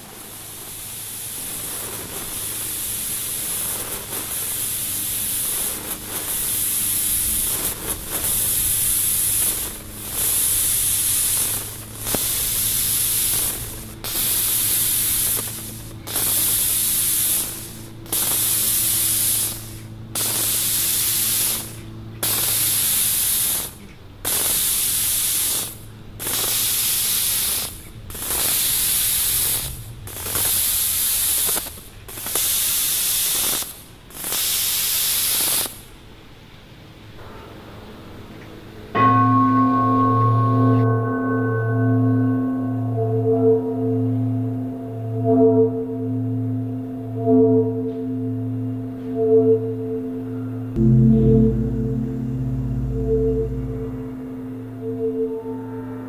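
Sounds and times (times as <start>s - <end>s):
loud high hiss: 0.0s - 36.0s
faint low hum: 42.1s - 56.0s.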